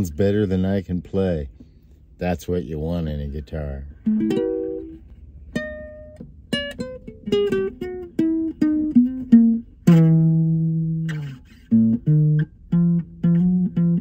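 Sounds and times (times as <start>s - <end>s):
classical guitar fingerstyle melody: 3.9s - 14.0s.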